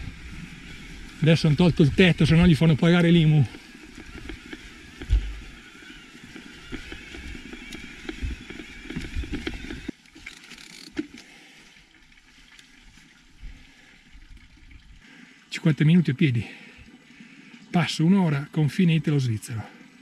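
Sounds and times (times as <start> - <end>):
bike tyres rolling over grass: 0.0 - 15.0
bike knocks and rattles: 3.5 - 5.6.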